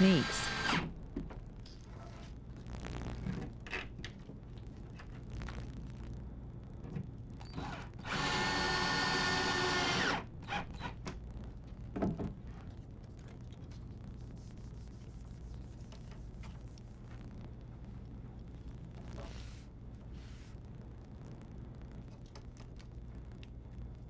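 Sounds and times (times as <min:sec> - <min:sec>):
cordless drill driving screw: 0:00.0 - 0:00.9, 0:07.6 - 0:10.6.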